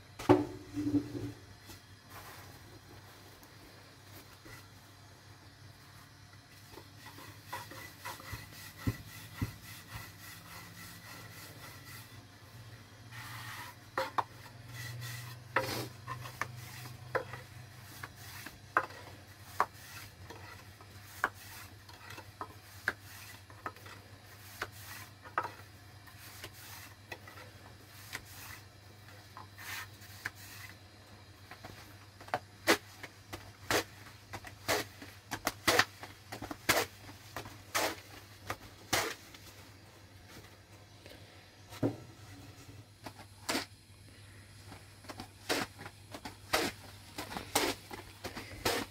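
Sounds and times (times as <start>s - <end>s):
rolling pin rubbing dough: 6.7s - 12.3s, 13.1s - 30.8s, 45.4s - 48.9s.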